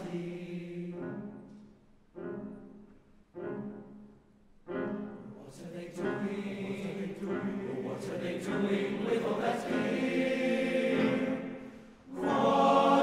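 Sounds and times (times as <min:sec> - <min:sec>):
male choir singing chords: 0:00.0 - 0:01.6, 0:04.9 - 0:13.0.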